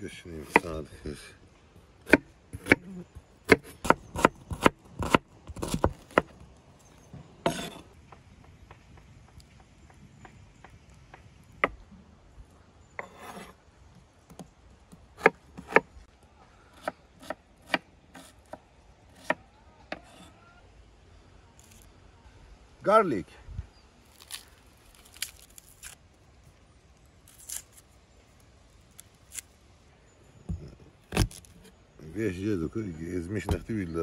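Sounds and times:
knife chopping on wooden board: 7.5 - 7.8, 15.2 - 15.9.

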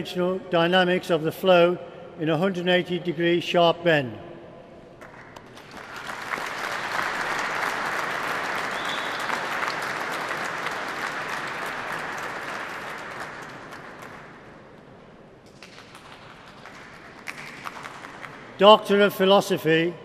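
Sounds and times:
audience applauding: 5.0 - 14.5, 15.6 - 18.6.

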